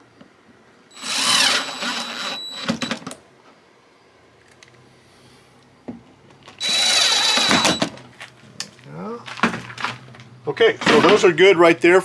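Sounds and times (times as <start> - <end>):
cordless drill whining: 0.9 - 3.1, 6.6 - 8.0.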